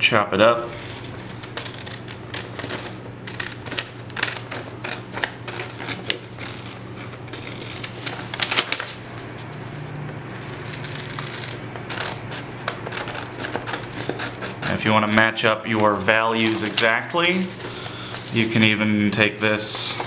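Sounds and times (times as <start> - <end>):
scissors snipping paper: 0.7 - 8.9, 10.4 - 15.2
paper rustling: 0.7 - 20.0.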